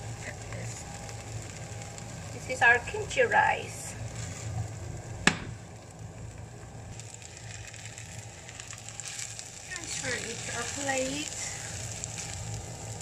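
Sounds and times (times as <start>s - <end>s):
rice crackling in frying pan: 0.0s - 13.0s
rice scraping out of pan: 7.0s - 13.0s.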